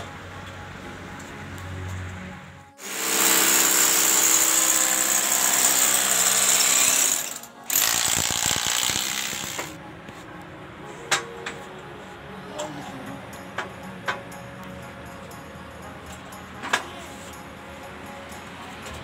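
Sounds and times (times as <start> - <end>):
electric drill boring into wall: 2.8 - 9.8.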